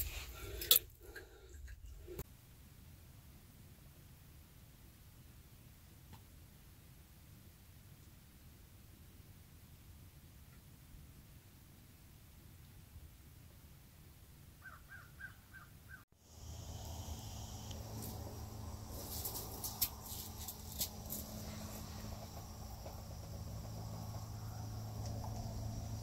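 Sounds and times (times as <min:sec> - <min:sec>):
low hum: 0:16.3 - 0:26.0.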